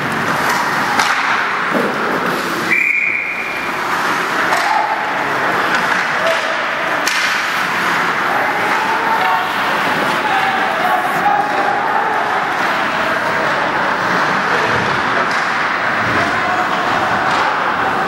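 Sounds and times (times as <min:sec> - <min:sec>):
crowd hubbub: 0:00.0 - 0:18.0
sticks and puck clacking: 0:00.0 - 0:18.0
referee's whistle: 0:02.7 - 0:03.7.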